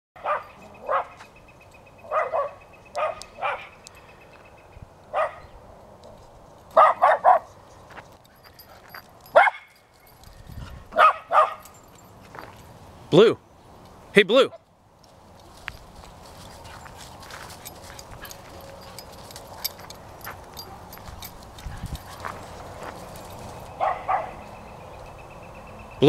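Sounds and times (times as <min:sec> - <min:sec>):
dog barking: 0:00.2 - 0:01.2, 0:02.1 - 0:03.8, 0:05.1 - 0:05.5, 0:06.8 - 0:07.5, 0:09.4 - 0:09.7, 0:11.0 - 0:11.6, 0:23.8 - 0:24.4.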